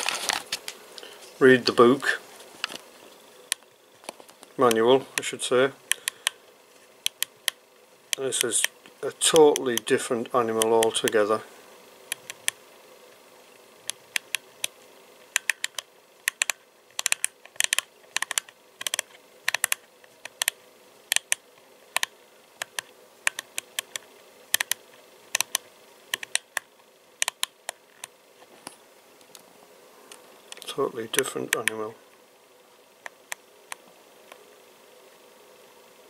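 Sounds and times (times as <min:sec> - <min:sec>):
faint steady hum: 0:00.0 - 0:36.0
radio control plastic clicks: 0:03.5 - 0:05.3, 0:07.0 - 0:09.9, 0:10.5 - 0:11.2, 0:12.1 - 0:12.6, 0:13.9 - 0:28.1, 0:30.1 - 0:31.8.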